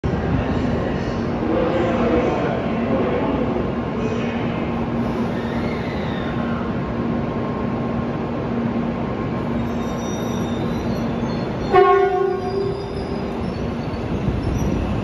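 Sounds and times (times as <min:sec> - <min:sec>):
hum of standing train: 0:00.0 - 0:15.0
train horn blast: 0:11.6 - 0:13.0.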